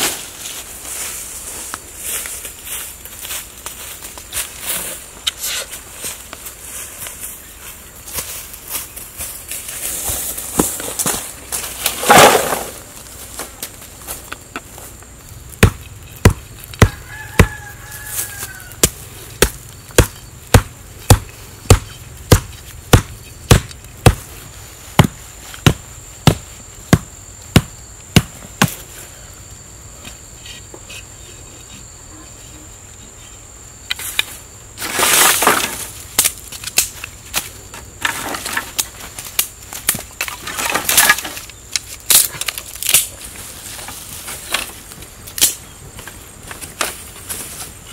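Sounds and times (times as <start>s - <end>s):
rustling dry leaves and sticks: 0.0s - 27.4s, 33.9s - 47.9s
high-pitched insect drone: 14.0s - 24.8s
wooden stakes hammered: 15.6s - 17.6s, 18.8s - 24.4s, 25.0s - 28.8s.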